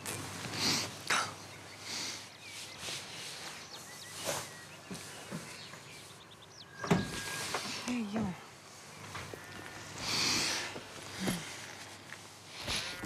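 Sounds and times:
faint bird chirps: 1.0 - 9.8.

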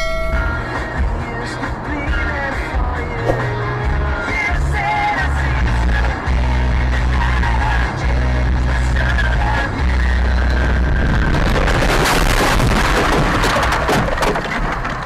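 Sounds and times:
pop music with singing: 0.0 - 10.9.

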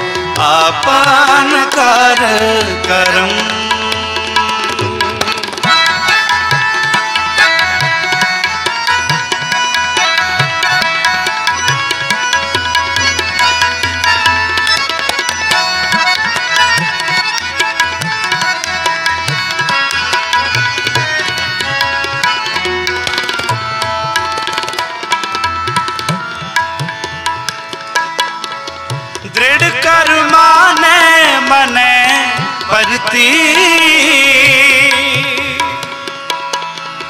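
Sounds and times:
person singing: 0.0 - 6.4, 29.2 - 36.2
harmonium chords: 0.0 - 37.0
tabla strokes: 0.0 - 37.0.

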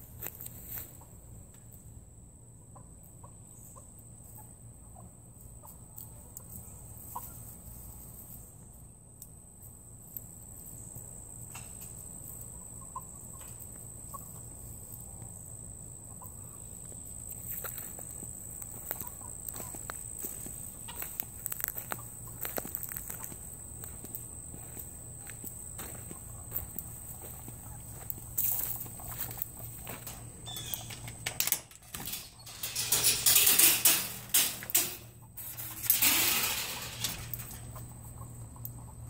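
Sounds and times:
chickens clucking softly: 2.6 - 8.4, 11.5 - 24.2, 25.4 - 31.2, 37.5 - 39.0
footsteps in grass: 17.5 - 30.9.

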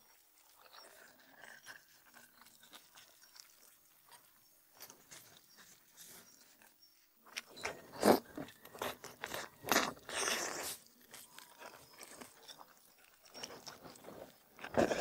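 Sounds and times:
person chewing: 0.0 - 15.0
crunchy bites: 7.3 - 15.0.

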